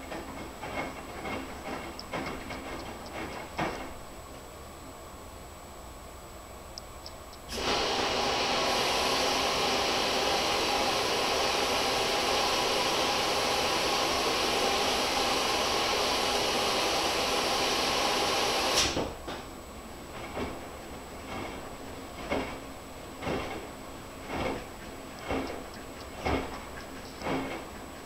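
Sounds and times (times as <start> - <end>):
water rushing into washing machine: 7.5 - 19.2, 20.1 - 28.0.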